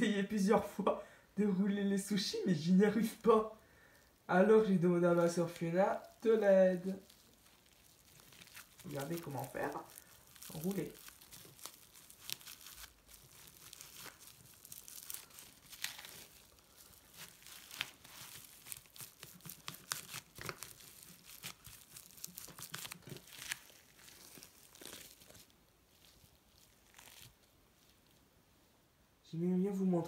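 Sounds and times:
cling film crackling: 2.0 - 28.2.

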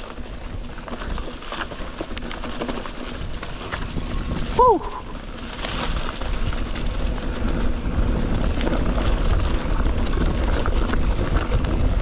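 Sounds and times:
bike rattles and clicks: 0.0 - 12.0
bike tyres rumbling on dirt: 0.0 - 12.0
wind buffeting microphone: 2.9 - 12.0.

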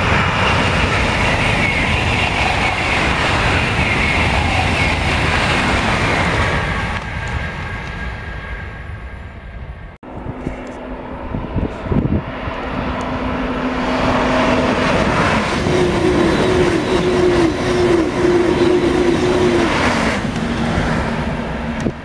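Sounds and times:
high-speed train passing: 0.0 - 22.0
pulsing hum: 10.1 - 22.0.

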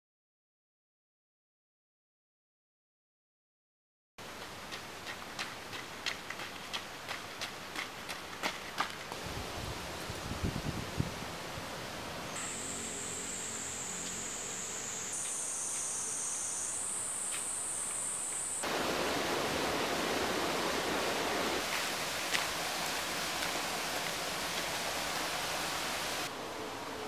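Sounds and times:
faint hiss: 9.0 - 27.0
even rushing noise: 9.2 - 26.9
high-pitched insect buzz: 12.3 - 18.7.

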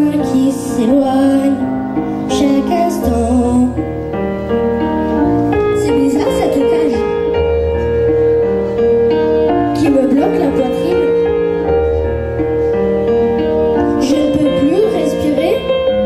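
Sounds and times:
person singing: 0.0 - 3.8
slow keyboard chords: 0.0 - 16.0.

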